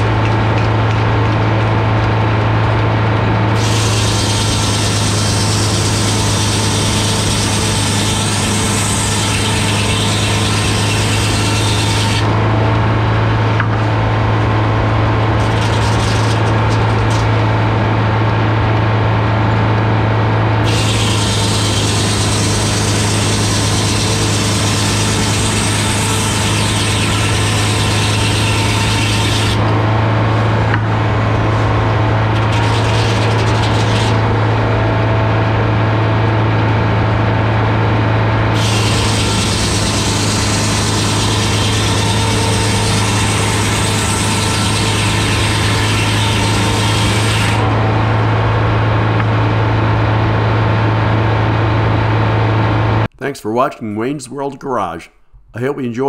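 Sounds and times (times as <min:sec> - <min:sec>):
diesel engine running: 0:00.0 - 0:53.1
circular saw blade ripping wood: 0:03.5 - 0:12.4, 0:15.4 - 0:17.4, 0:20.6 - 0:29.8, 0:32.2 - 0:34.4, 0:38.5 - 0:47.8.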